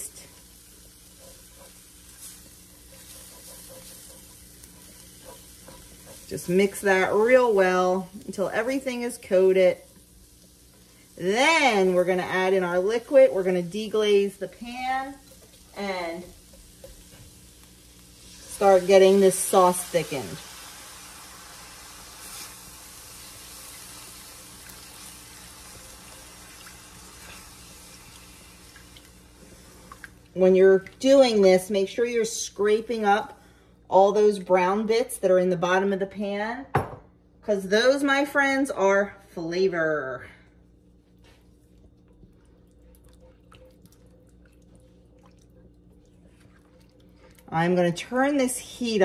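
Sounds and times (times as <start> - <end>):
broth hissing in hot skillet: 0.0 - 8.1, 14.8 - 30.0
spatula scraping skillet: 0.0 - 8.4
low steady hum: 0.0 - 49.0.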